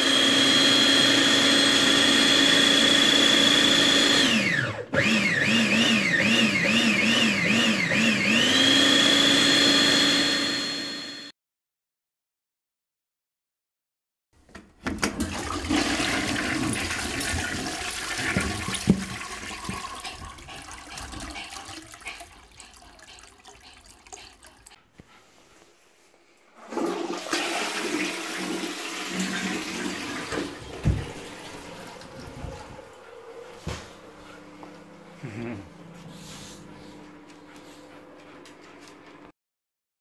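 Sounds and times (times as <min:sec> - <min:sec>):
toilet flushing: 0:14.9 - 0:24.8, 0:26.5 - 0:33.8.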